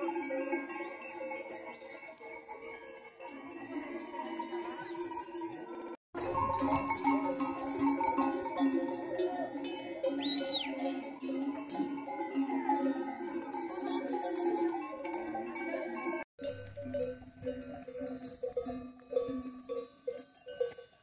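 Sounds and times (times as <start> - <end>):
sheep bells clanking: 0.0 - 21.0
short high whistle: 4.5 - 4.9, 10.2 - 10.7.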